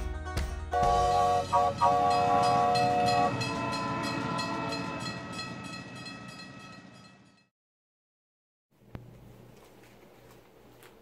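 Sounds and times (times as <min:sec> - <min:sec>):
train whistle toots: 0:00.8 - 0:04.2.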